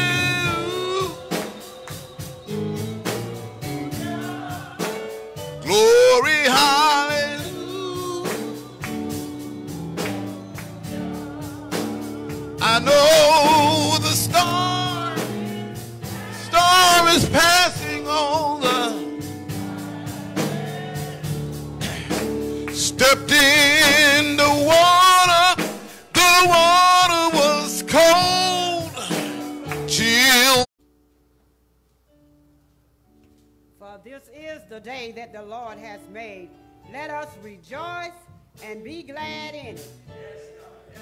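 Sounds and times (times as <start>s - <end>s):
electric keyboard chords: 0.0s - 30.6s
man singing with vibrato: 0.0s - 30.7s
hand claps: 8.3s - 9.2s, 10.0s - 11.0s, 29.1s - 30.0s.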